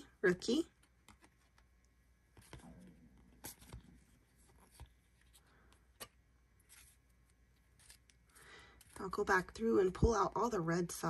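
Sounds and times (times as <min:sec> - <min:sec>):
cards clicking and sliding: 0:00.8 - 0:01.7, 0:02.3 - 0:09.0.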